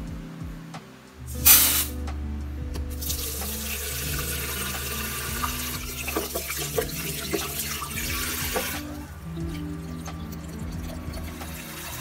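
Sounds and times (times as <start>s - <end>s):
tap water running onto rice: 3.0s - 9.6s, 10.3s - 12.0s
water splashes and drips: 3.0s - 12.0s.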